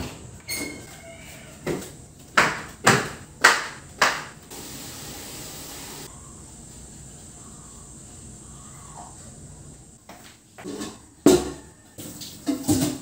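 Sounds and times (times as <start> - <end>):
steady hiss: 4.5 - 8.6.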